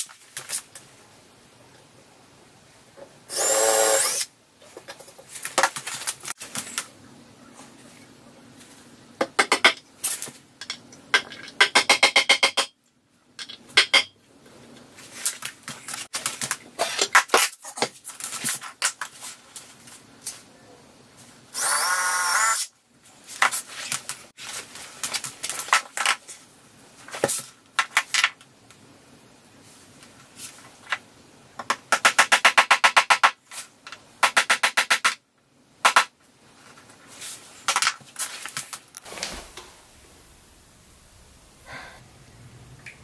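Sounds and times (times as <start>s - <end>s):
cordless drill running: 3.3s - 4.3s, 21.6s - 22.6s.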